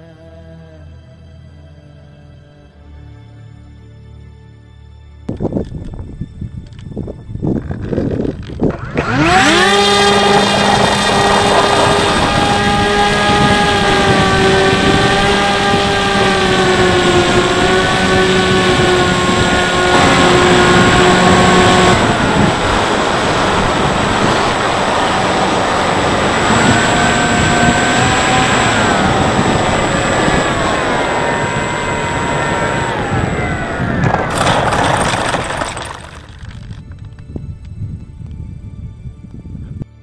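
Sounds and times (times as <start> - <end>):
electric motor whining: 7.4 - 37.2
rushing airflow: 8.7 - 36.0.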